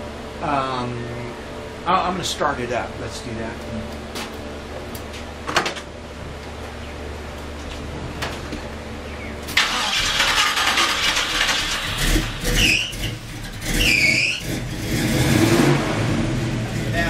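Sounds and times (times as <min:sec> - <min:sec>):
engine cranking and revving: 0:09.5 - 0:17.0
short high squeals: 0:11.4 - 0:14.6.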